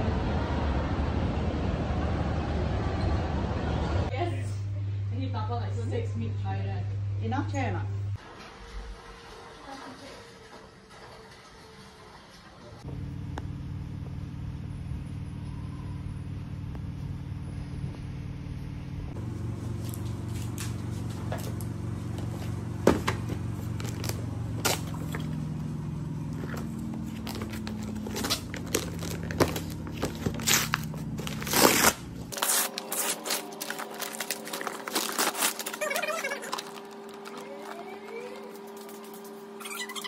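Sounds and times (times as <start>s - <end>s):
steady low hum: 0.0s - 8.2s, 12.8s - 40.0s
wrapping paper crackling and tearing: 23.6s - 25.3s, 26.8s - 39.8s.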